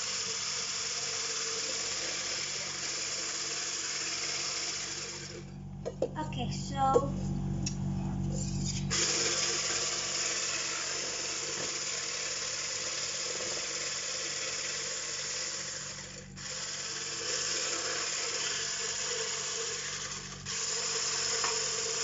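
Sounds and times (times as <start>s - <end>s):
electric hand mixer whirring: 0.0s - 5.5s, 8.7s - 22.0s.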